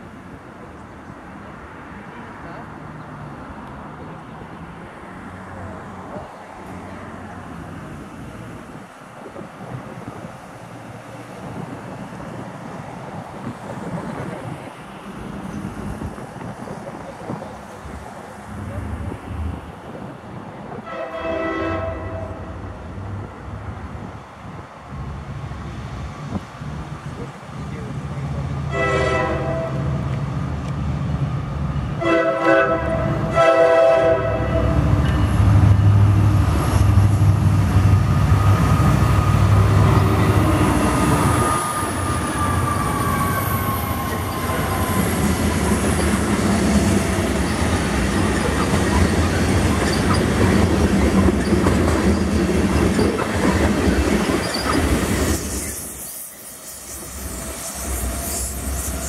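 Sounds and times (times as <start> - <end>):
diesel locomotive engine rumble: 0.0 - 59.0
train horn blasts: 20.8 - 22.7, 28.7 - 30.0, 32.0 - 35.0
wheels squealing on rail: 38.5 - 59.0
train wheel clatter: 44.1 - 59.0.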